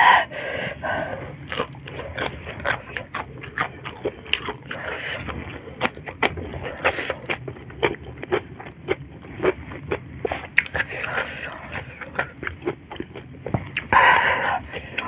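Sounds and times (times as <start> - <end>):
wet chewing mouth clicks: 1.5 - 15.0.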